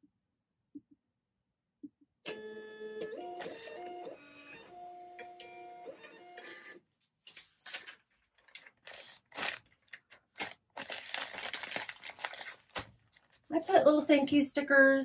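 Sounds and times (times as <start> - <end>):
label printer motor whining: 2.3 - 6.8
packaging rustling and crinkling: 7.2 - 13.7.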